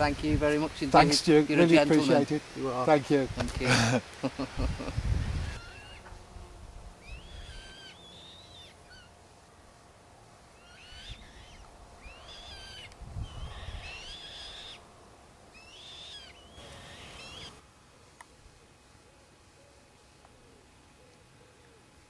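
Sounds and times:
owl calling shrilly: 5.4 - 6.1, 7.0 - 9.2, 10.6 - 14.9, 15.5 - 17.6.

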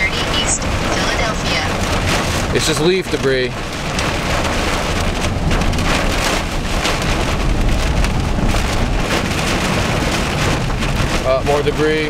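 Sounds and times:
heavy rain on car windshield: 0.0 - 12.0
low car rumble: 0.0 - 12.0.

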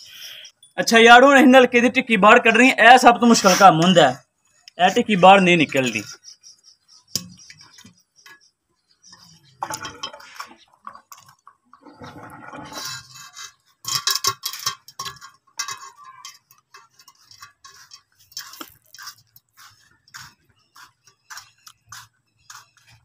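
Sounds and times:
metal rod scraping in pump barrel: 9.1 - 23.0.

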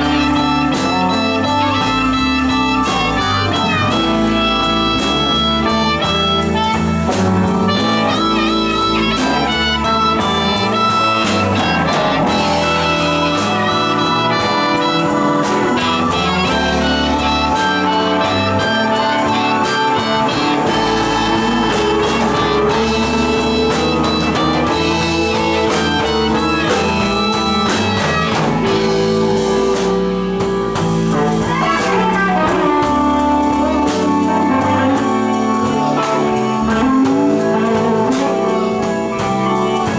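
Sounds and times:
bass and drums: 0.0 - 39.9
electric guitar: 0.0 - 39.9.

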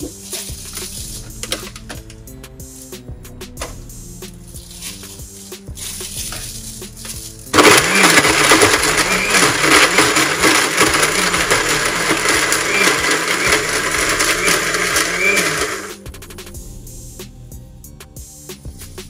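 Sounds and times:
blender motor grinding: 7.5 - 16.0.

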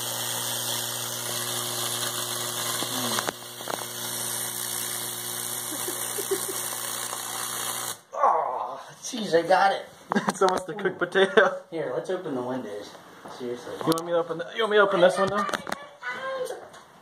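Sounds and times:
electrical arc buzzing and crackling: 0.0 - 8.1.

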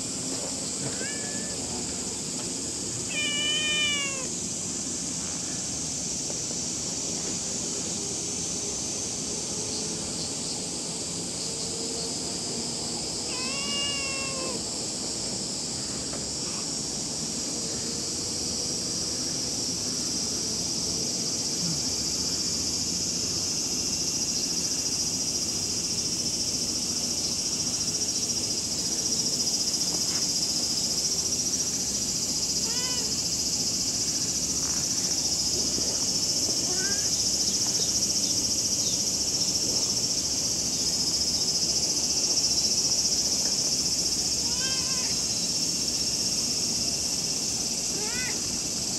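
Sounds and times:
insects droning: 0.0 - 48.9
cat meow: 0.9 - 1.6, 3.1 - 4.3, 13.3 - 14.6, 32.6 - 33.1, 44.4 - 45.2, 48.0 - 48.4.

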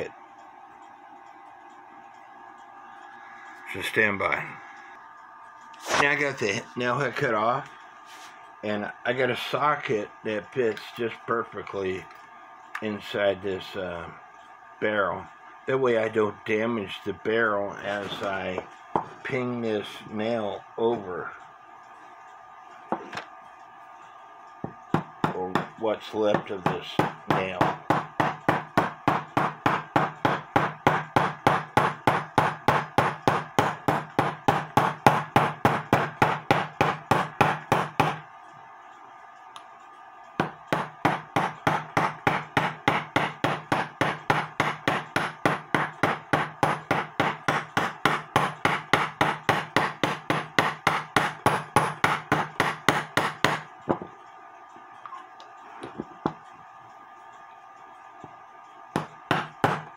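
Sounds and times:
small hammer tapping metal: 40.4 - 54.1.

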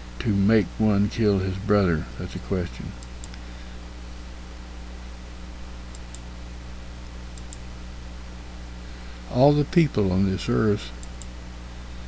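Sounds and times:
low electrical hum: 0.0 - 12.0
faint ticks: 7.4 - 7.6.

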